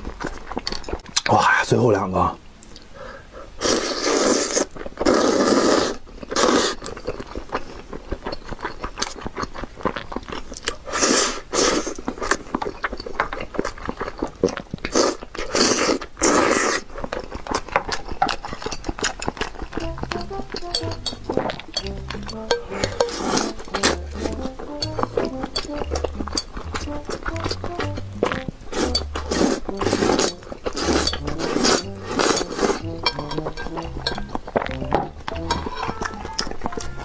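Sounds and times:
wet chewing with lip-smacking: 0:00.0 - 0:01.3, 0:03.6 - 0:37.0
loud slurping of noodles: 0:03.6 - 0:06.8, 0:10.8 - 0:12.1, 0:14.9 - 0:16.9, 0:28.7 - 0:32.8.

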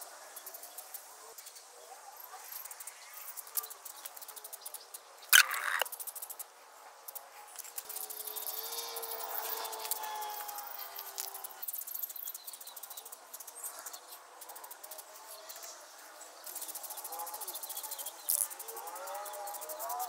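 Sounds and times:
insects chirping: 0:05.4 - 0:06.5.

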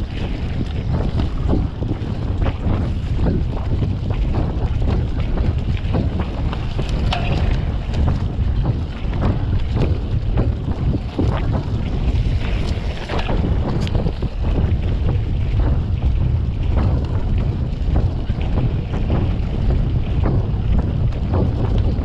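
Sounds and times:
bike clicks and rattles: 0:00.0 - 0:22.0
wind rumble on microphone: 0:00.0 - 0:22.0.

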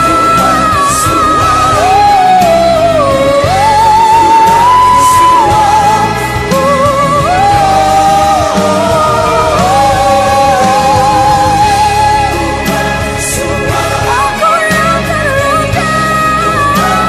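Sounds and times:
band accompaniment: 0:00.0 - 0:17.0.

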